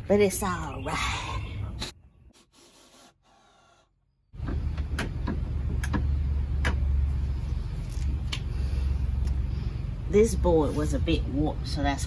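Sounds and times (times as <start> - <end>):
steady low rumble: 4.4 - 12.0.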